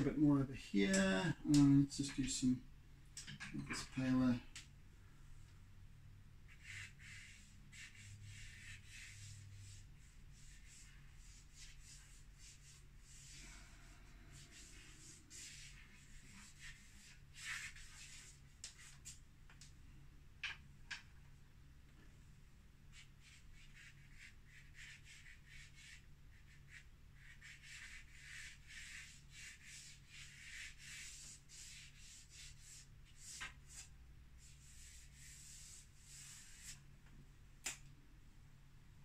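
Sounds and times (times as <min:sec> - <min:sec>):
chalk pastel scratching: 0:06.5 - 0:19.2, 0:22.9 - 0:36.8.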